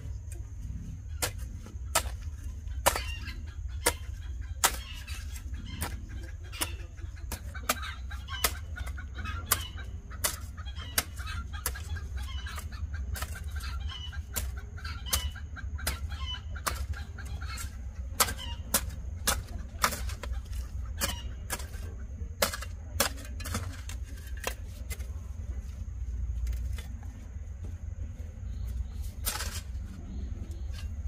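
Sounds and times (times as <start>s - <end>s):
chickens clucking: 0.0s - 31.0s
low rumble: 24.8s - 31.0s.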